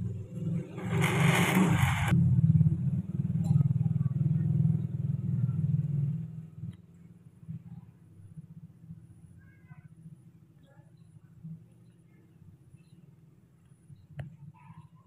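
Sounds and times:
small engine droning: 0.0 - 6.8.

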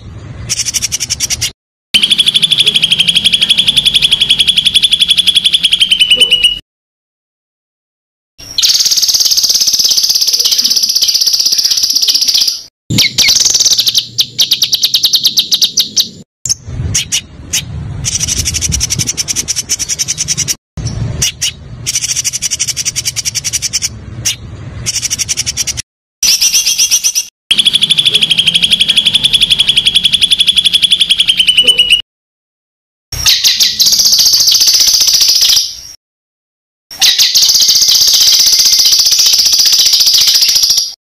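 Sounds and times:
songbird buzzy trills: 0.4 - 6.6, 8.4 - 32.0.

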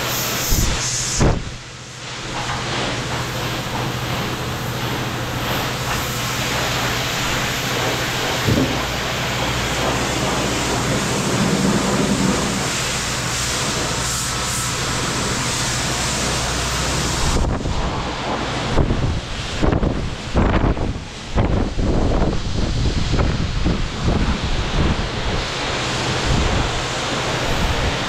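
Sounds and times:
pressure washer spraying car: 0.0 - 28.0
low hum: 1.5 - 25.4.

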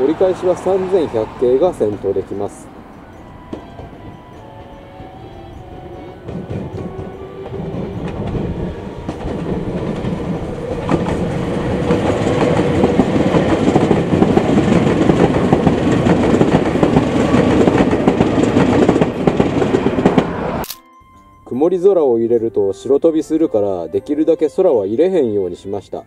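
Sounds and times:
wheels clattering over rail joints: 0.0 - 20.4
electric train running past: 0.0 - 20.7.

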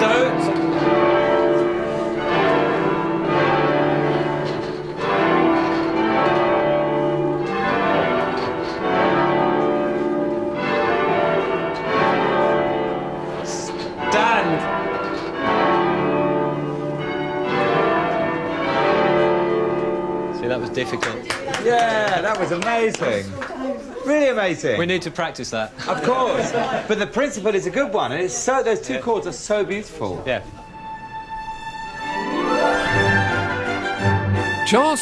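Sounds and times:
church bells ringing in chords: 0.0 - 21.3.

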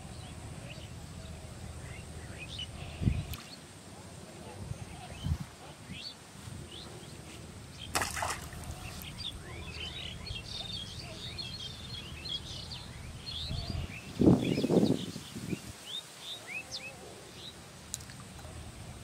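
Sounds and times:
small birds chirping: 4.4 - 18.6.

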